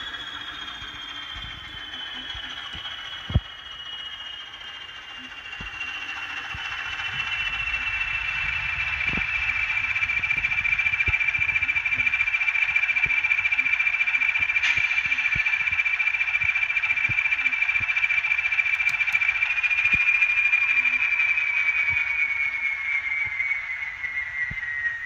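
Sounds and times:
model diesel engine sound: 0:00.0 - 0:24.8
high whine: 0:00.0 - 0:25.0
sharp clicks: 0:18.6 - 0:20.0.

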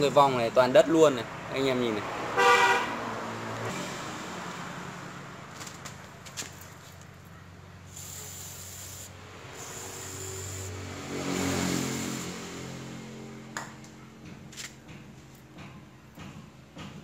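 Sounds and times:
aerosol spray hissing: 0:07.9 - 0:10.8.

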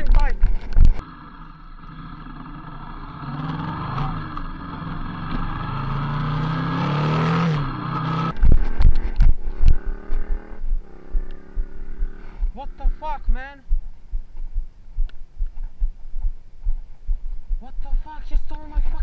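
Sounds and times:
motorcycle engine accelerating: 0:00.0 - 0:14.5
rough buffeting noise: 0:00.0 - 0:19.0.

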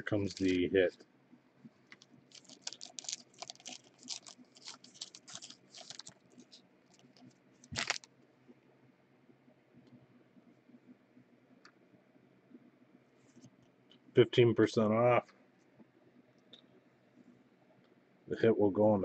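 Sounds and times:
foil wrapper crinkling: 0:00.0 - 0:00.7, 0:01.9 - 0:08.1
foil wrapper crumple: 0:00.1 - 0:00.7, 0:01.9 - 0:08.1.

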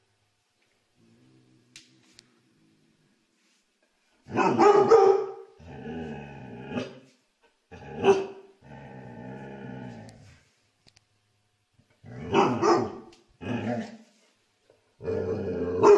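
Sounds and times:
dog barking: 0:04.3 - 0:05.5, 0:08.0 - 0:08.4, 0:12.3 - 0:13.1
dog growling: 0:05.6 - 0:07.1, 0:07.7 - 0:10.4, 0:12.0 - 0:14.0, 0:15.0 - 0:15.9.

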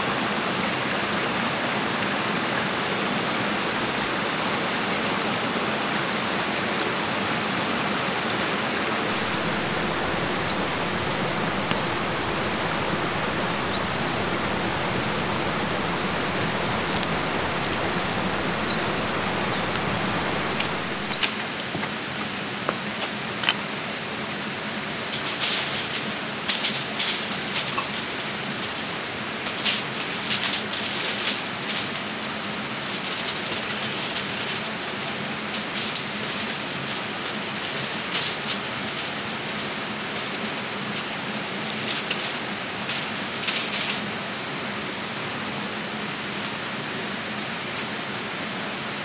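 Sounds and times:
stream water rushing: 0:08.1 - 0:21.5.

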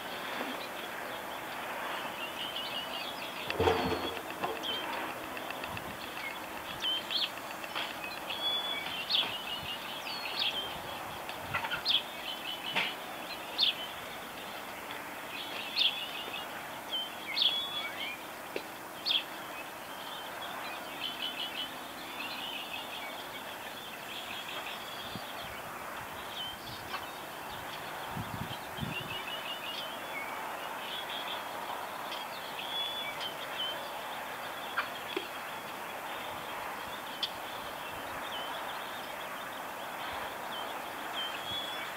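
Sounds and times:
outdoor background hiss: 0:00.0 - 0:41.9
small birds chirping: 0:00.0 - 0:41.9.

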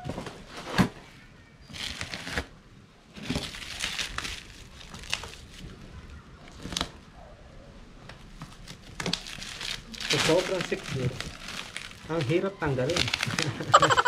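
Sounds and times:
plastic wrap crinkling and tearing: 0:01.7 - 0:07.0, 0:08.2 - 0:14.0.

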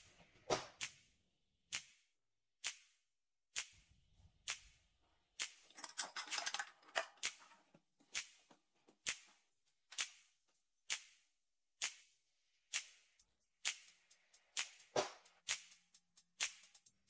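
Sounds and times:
crackling small clicks: 0:05.4 - 0:09.3.

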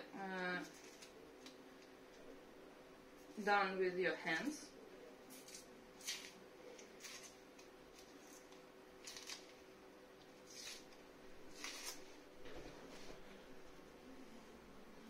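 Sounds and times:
dried fish skin crackling: 0:00.3 - 0:01.6, 0:05.3 - 0:12.2.

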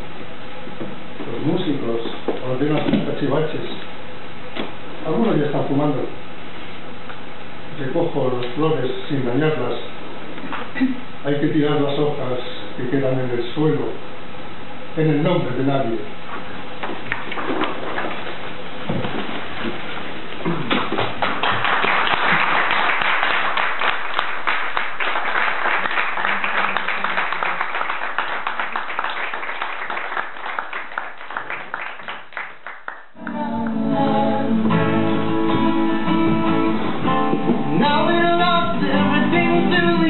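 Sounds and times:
audience applause: 0:20.7 - 0:33.3
person singing: 0:33.2 - 0:36.8, 0:37.7 - 0:40.0
acoustic guitars playing: 0:33.2 - 0:40.0.

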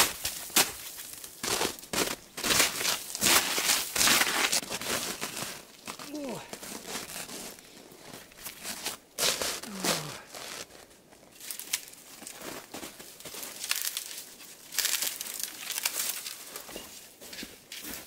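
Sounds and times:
footsteps crunching on snow: 0:00.0 - 0:18.0.

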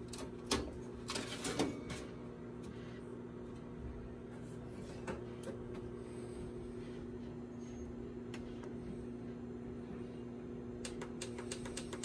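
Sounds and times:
sheet metal clicks and rattles: 0:00.0 - 0:02.0
steady low hum: 0:00.0 - 0:12.0.

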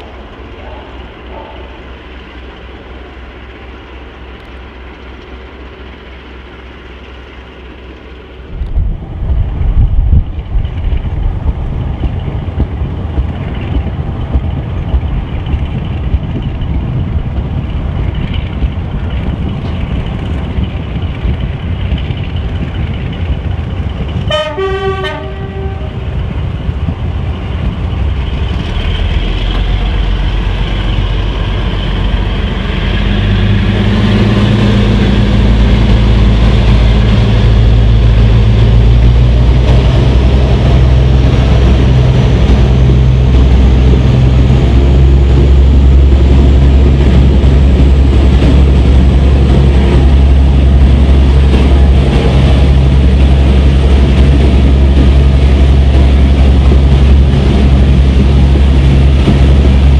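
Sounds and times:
train running noise: 0:00.0 - 0:59.9
two-note train horn blast: 0:24.3 - 0:26.0.

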